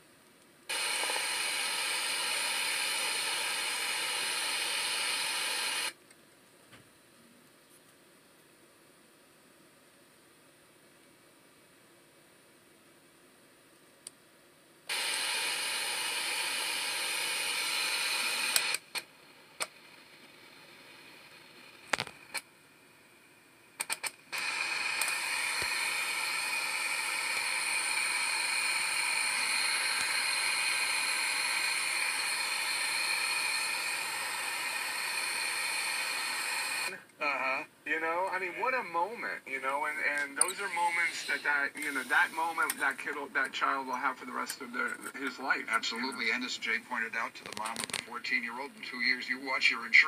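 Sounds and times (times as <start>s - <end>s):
radio static hissing: 0.7s - 6.0s, 14.9s - 22.5s, 23.8s - 50.0s
sharp clicks: 18.5s - 19.8s, 23.8s - 25.8s.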